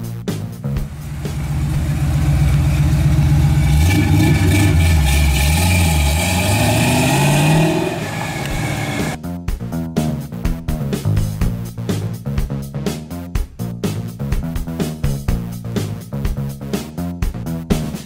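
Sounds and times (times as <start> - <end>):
car engine pulling away: 0.8 - 9.2.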